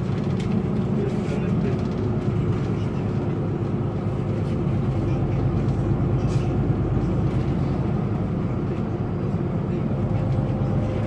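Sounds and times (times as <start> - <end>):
bus engine running: 0.0 - 11.0
road and tyre noise: 0.0 - 11.0.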